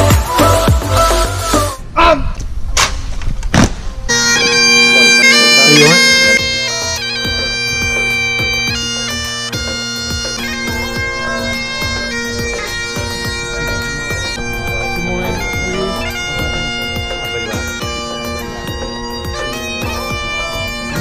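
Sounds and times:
music with a beat: 0:00.0 - 0:01.8, 0:06.4 - 0:15.8
bagpipes playing a tune: 0:04.1 - 0:21.0.

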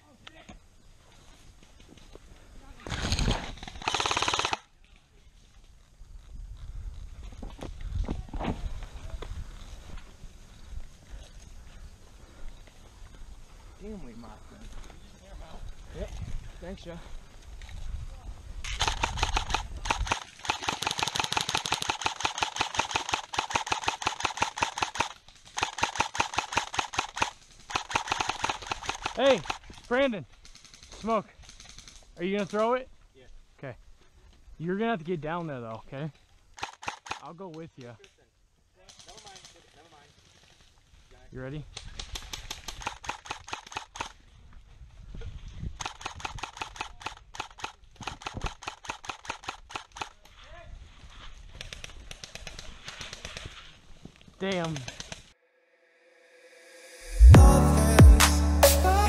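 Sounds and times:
airsoft rifle firing: 0:03.0 - 0:04.6, 0:18.7 - 0:29.6.

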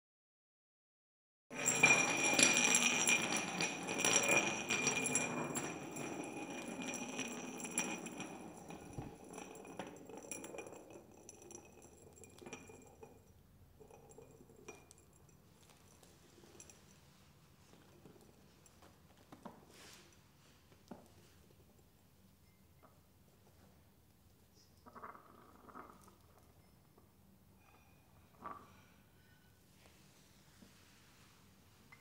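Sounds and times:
glasses clinking on hard floor: 0:01.5 - 0:21.4, 0:25.0 - 0:29.6.

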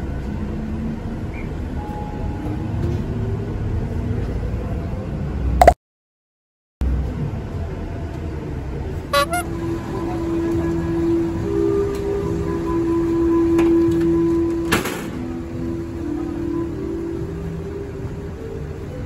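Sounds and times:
bus engine rumble: 0:00.0 - 0:05.6, 0:06.8 - 0:19.0.

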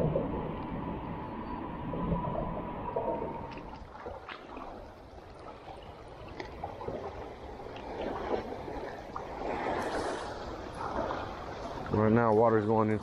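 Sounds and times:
water sloshing and lapping: 0:00.0 - 0:13.0.

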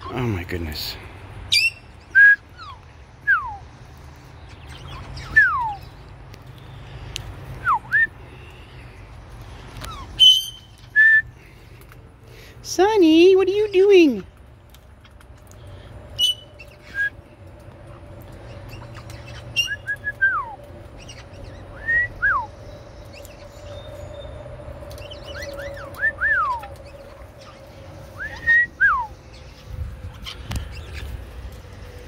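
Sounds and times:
parrots whistling and chirping: 0:01.5 - 0:03.7, 0:04.5 - 0:06.0, 0:07.6 - 0:08.2, 0:09.8 - 0:11.4, 0:16.1 - 0:17.2, 0:18.4 - 0:31.2.

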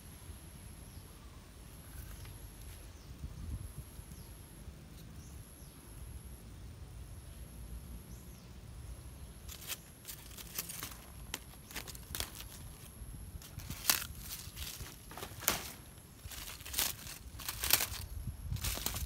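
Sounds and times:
dry leaves crackling and rustling: 0:09.4 - 0:19.0.

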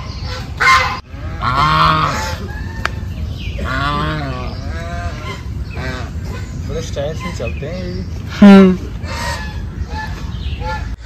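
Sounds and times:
geese honking: 0:00.0 - 0:11.0.

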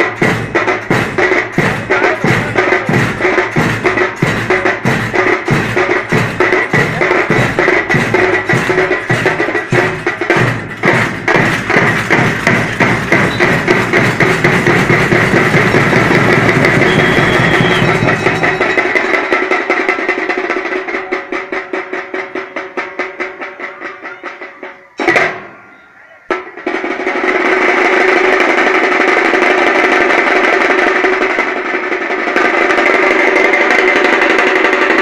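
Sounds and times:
drum beating: 0:00.0 - 0:35.0
hand cymbals clashing: 0:00.2 - 0:19.4.

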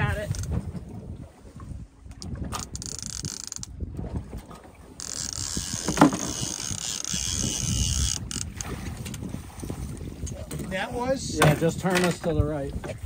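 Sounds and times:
fishing reel whirring ratchet: 0:02.6 - 0:03.7, 0:05.0 - 0:08.5.

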